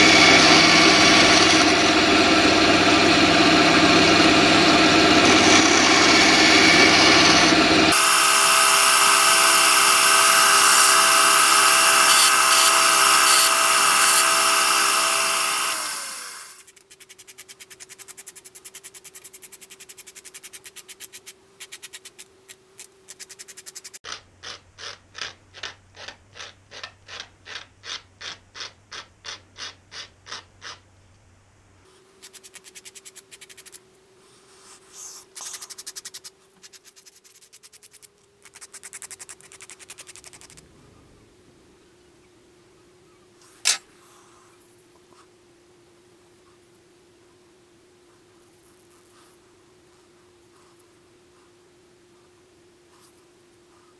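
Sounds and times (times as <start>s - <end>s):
bandsaw cutting wood: 0.0s - 16.6s
hand file rasping on wood: 23.4s - 30.8s.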